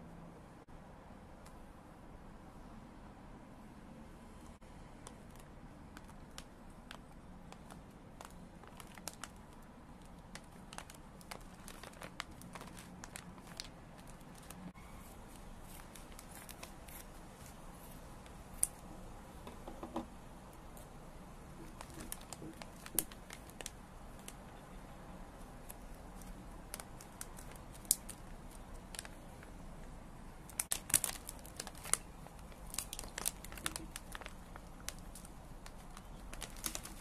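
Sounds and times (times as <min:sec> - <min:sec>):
plastic snack pouch crinkling: 0:05.0 - 0:14.7, 0:15.3 - 0:17.6, 0:21.6 - 0:24.4, 0:25.4 - 0:29.6, 0:30.5 - 0:37.0.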